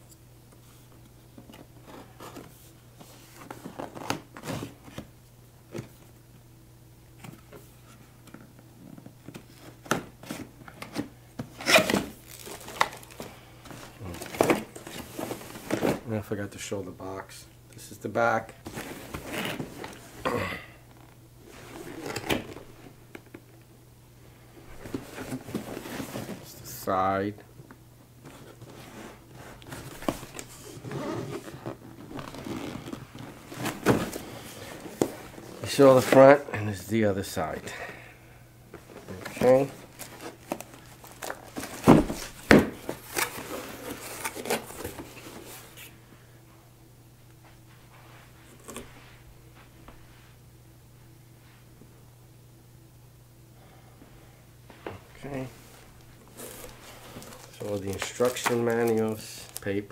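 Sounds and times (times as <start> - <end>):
cardboard scraping and rustling: 9.5 - 16.1, 24.8 - 26.5, 28.3 - 36.4, 39.0 - 45.9, 56.3 - 59.6.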